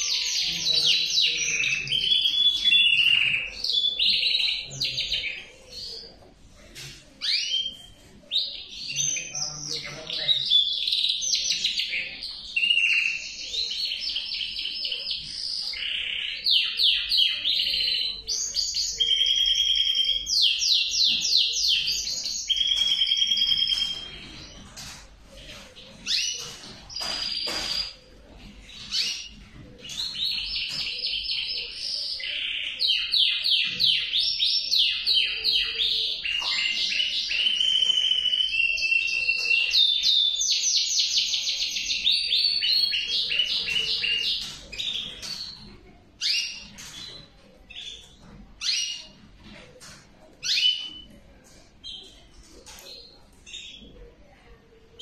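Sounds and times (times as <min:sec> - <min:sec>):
canary singing trills: 0:07.2 - 0:49.6.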